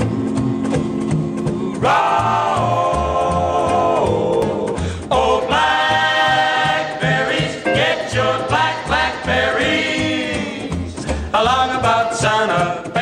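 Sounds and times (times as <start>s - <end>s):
male vocal quartet singing: 0.0s - 13.0s
orchestra playing: 6.6s - 11.1s.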